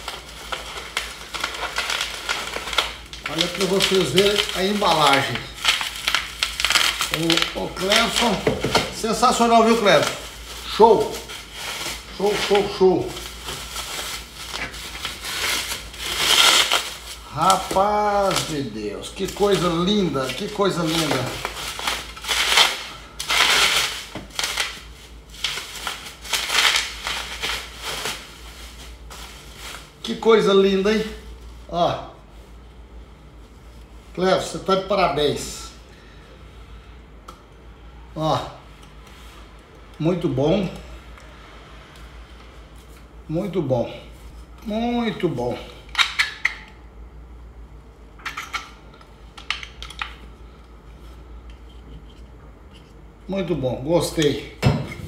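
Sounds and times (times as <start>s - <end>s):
plastic packaging rustling: 0.0s - 32.6s.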